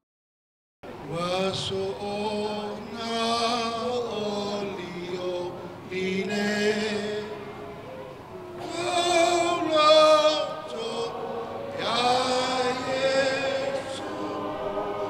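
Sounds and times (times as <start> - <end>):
man chanting: 8.6 - 15.0.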